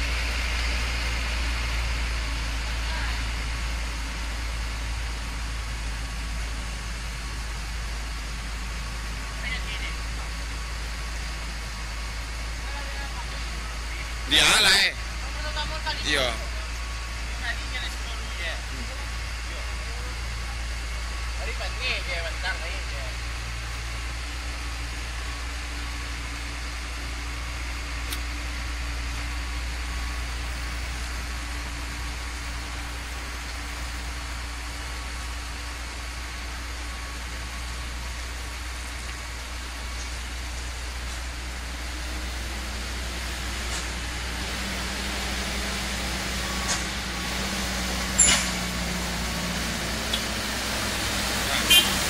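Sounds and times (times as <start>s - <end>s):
engine idling: 0.0s - 52.0s.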